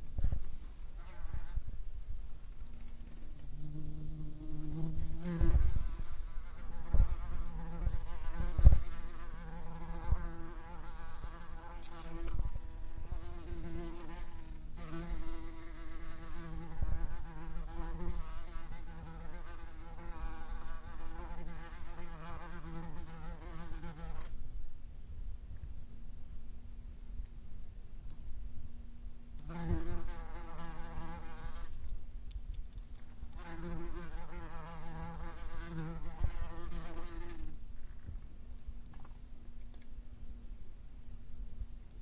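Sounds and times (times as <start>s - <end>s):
wasp wings buzzing: 3.5s - 24.3s, 33.3s - 37.6s.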